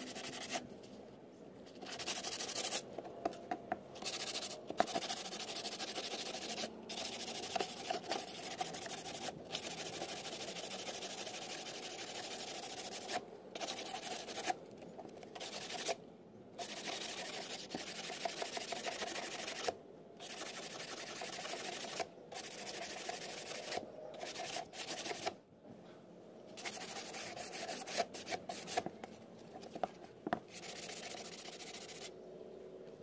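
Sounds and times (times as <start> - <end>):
sandpaper rubbing fiberglass: 0.0 - 0.6, 1.7 - 2.8, 4.0 - 14.6, 15.4 - 16.0, 16.6 - 25.3, 26.6 - 28.9, 30.5 - 32.1.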